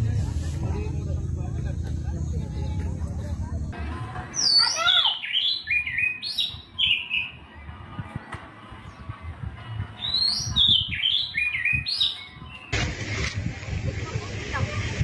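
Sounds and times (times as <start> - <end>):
songbird whistling: 4.4 - 7.4, 10.0 - 12.7.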